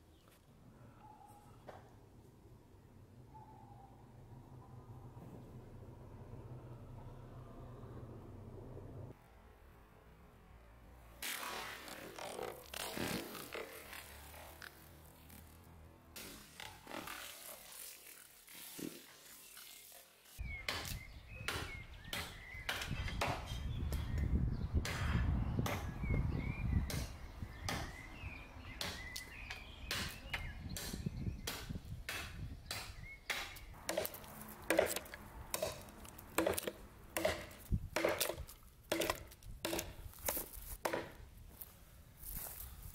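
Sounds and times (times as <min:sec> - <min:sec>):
knife chopping into wood: 0:30.8 - 0:41.2.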